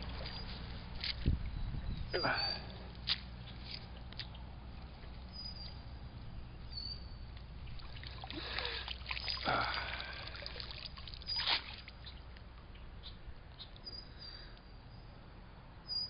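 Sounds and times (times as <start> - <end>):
fish splashing in water: 0.0 - 1.2, 7.5 - 12.2
steady low hum: 0.0 - 15.9.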